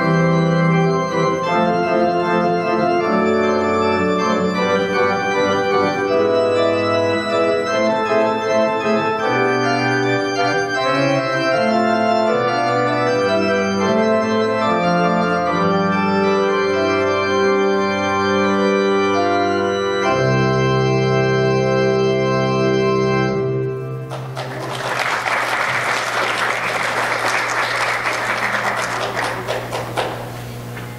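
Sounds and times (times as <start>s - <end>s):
organ chords: 0.0s - 30.9s
people applauding: 24.0s - 30.9s.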